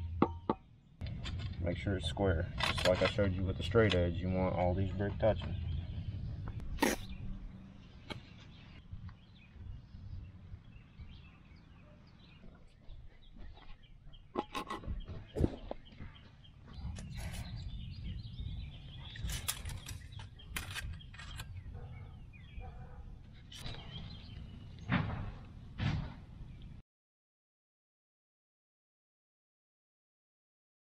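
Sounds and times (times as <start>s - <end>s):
steady low rumble: 1.0s - 11.2s.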